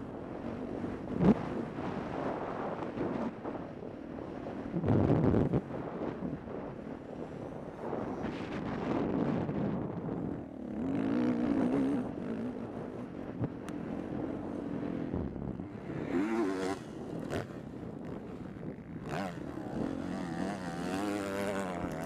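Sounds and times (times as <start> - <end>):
motocross bike engine revving: 15.9 - 18.2, 18.9 - 22.0.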